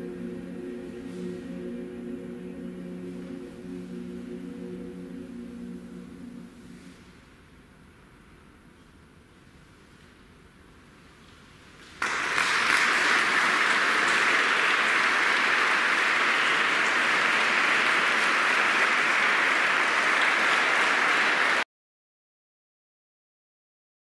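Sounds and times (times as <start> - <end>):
audience applauding: 12.0 - 21.6.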